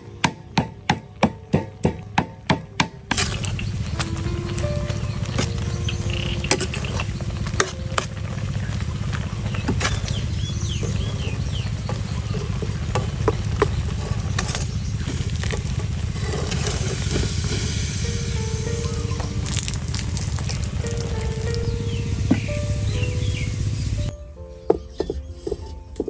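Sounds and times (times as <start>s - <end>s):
low rumble: 3.2s - 24.3s
frying sizzle: 11.4s - 23.8s.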